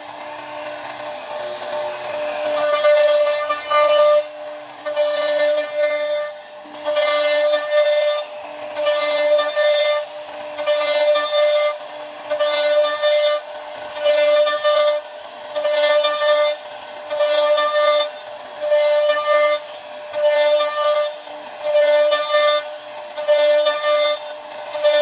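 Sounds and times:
router spindle whining: 0.0s - 25.0s
cutter biting into wood: 24.8s - 25.0s.

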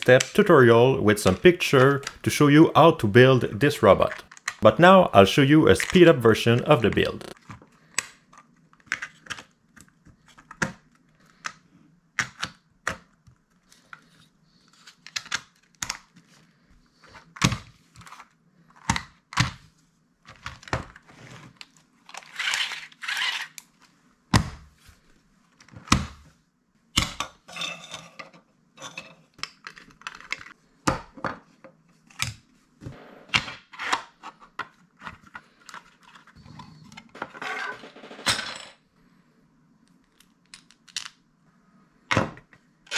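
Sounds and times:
plastic parts clicking: 4.0s - 4.6s, 29.4s - 30.6s.

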